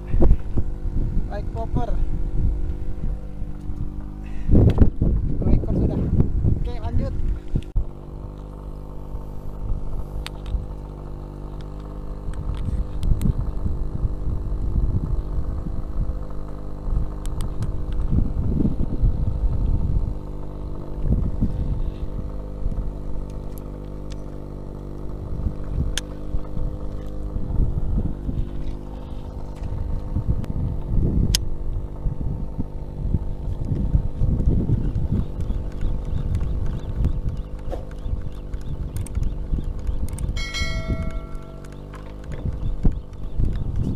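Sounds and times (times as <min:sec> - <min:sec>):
wind gusting on microphone: 0:00.0 - 0:08.3, 0:12.1 - 0:23.8, 0:25.1 - 0:43.9
boat engine running: 0:00.0 - 0:43.9
sharp clicks: 0:35.2 - 0:43.9.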